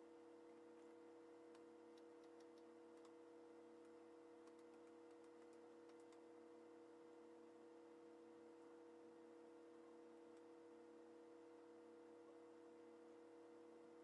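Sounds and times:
faint steady hum: 0.0s - 14.0s
faint ticks and clicks from handling: 0.7s - 3.2s, 3.8s - 6.3s.

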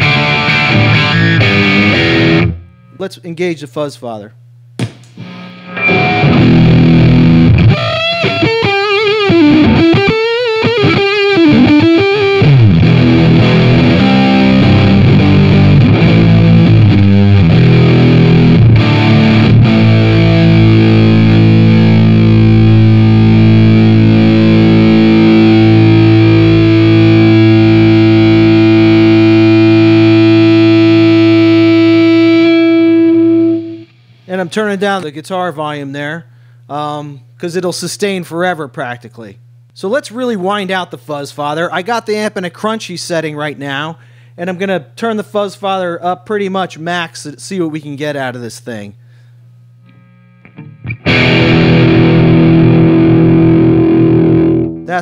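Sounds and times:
distorted fuzz electric guitar lead: 0.0s - 2.9s, 5.1s - 34.5s, 49.8s - 55.0s.

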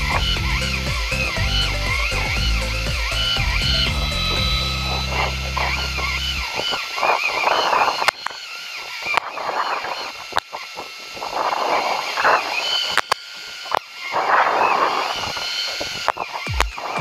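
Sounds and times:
sharp clicks: 0.0s - 9.4s
high wavering sound: 0.0s - 10.2s
wind: 0.0s - 17.0s.

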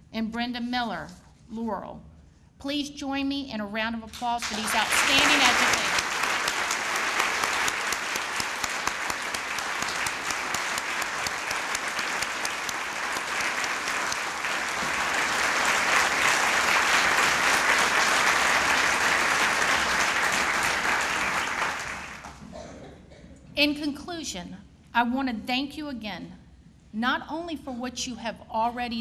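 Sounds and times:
large audience applauding: 4.4s - 22.5s.

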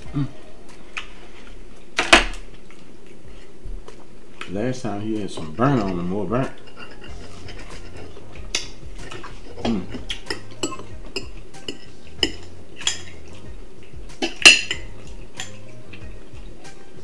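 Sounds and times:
cutlery clinking on plates: 5.8s - 13.4s, 14.1s - 15.7s.

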